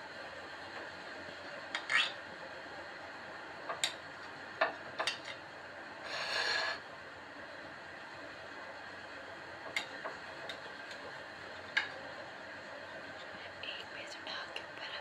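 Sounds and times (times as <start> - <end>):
plate scraping on countertop: 6.0 - 6.8.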